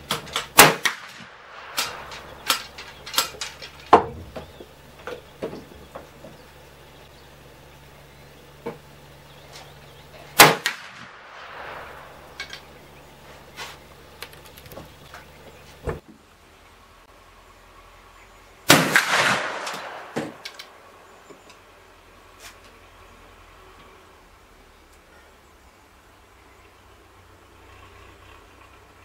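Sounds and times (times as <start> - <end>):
rifle shots: 0.1 - 3.9, 10.4 - 13.0, 18.7 - 21.0
faint clicks: 14.1 - 15.3.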